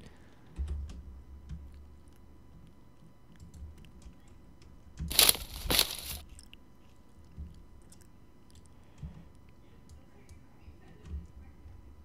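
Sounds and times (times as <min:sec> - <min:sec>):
crunching footsteps: 0:05.1 - 0:06.4.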